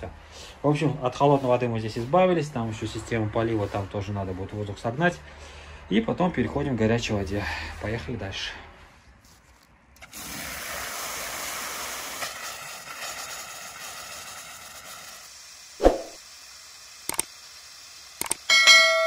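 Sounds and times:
hissing spray of air and water: 10.0 - 18.5
sharp clicks: 17.1 - 17.3, 18.2 - 18.5.

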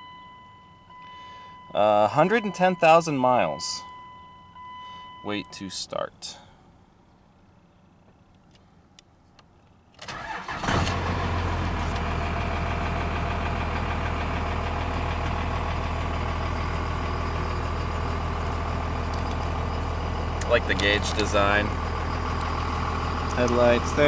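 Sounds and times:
diesel engine cranking and idling: 9.9 - 24.0.

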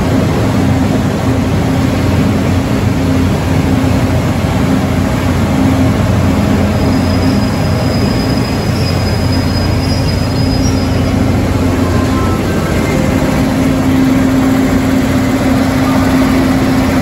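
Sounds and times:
train diesel engine humming: 0.0 - 17.0
faint high whine: 6.2 - 17.0.

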